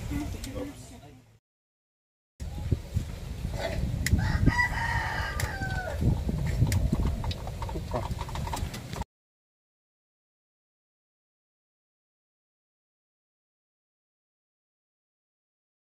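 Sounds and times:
rooster crowing: 4.2 - 6.1.

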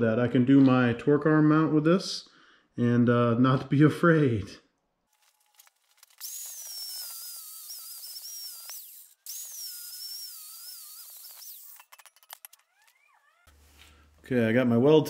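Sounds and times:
angle grinder cutting steel: 6.0 - 13.6.

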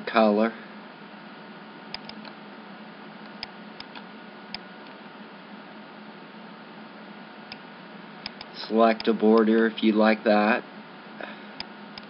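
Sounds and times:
computer mouse clicks: 1.9 - 2.4, 3.2 - 5.0, 8.2 - 9.6.

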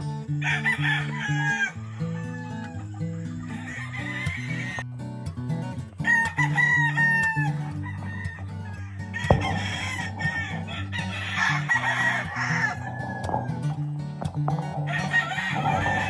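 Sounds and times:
acoustic guitar music: 0.0 - 16.0
roosters crowing: 0.3 - 4.8, 6.0 - 16.0
sharp knock: 9.3 - 10.8, 12.8 - 16.0.

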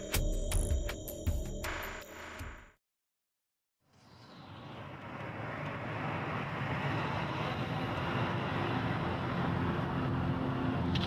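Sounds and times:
car engine and road noise: 3.9 - 11.0.

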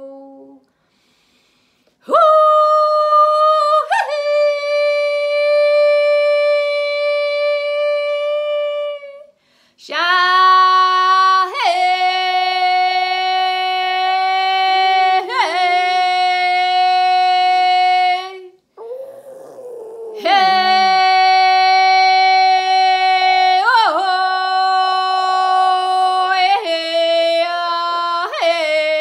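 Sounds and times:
woman breathing: 0.7 - 2.0, 9.3 - 9.8
woman toning long held notes: 19.6 - 22.0.

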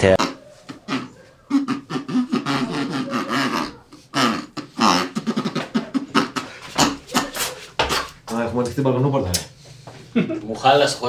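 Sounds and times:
person beatboxing: 0.0 - 8.0.

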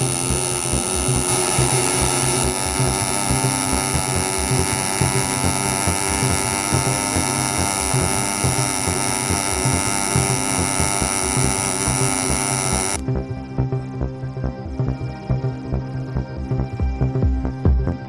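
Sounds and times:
welding arc buzzing and crackling: 0.0 - 13.0.

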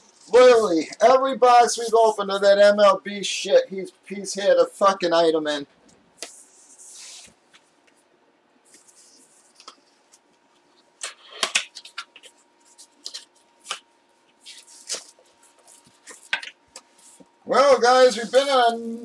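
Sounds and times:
faint steady hum: 0.0 - 19.0
box packaging clicks and rustles: 11.0 - 13.8.

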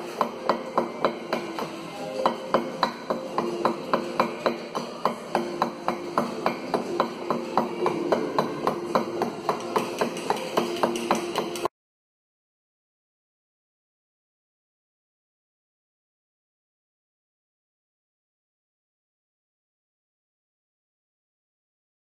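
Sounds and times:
mallet striking chisel on stone: 0.0 - 11.7.

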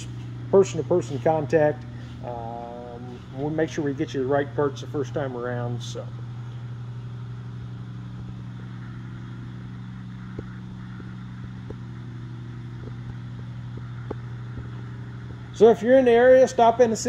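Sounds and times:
air compressor humming: 0.0 - 17.0.

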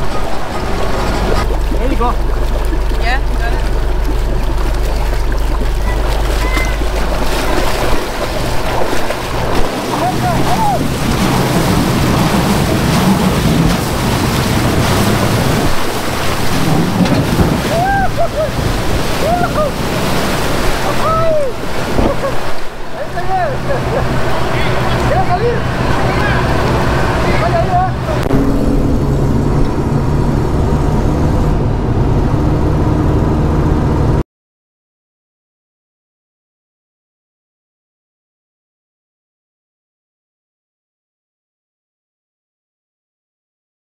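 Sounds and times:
vehicle engine running low: 0.0 - 34.2
wind on microphone: 2.2 - 22.8.

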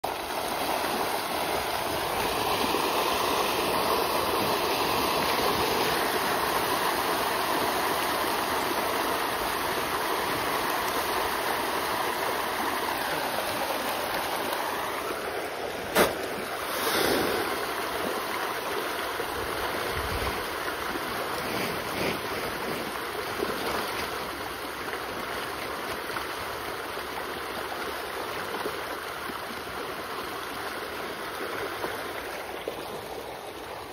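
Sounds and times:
fish splashing at surface: 15.8 - 18.2.

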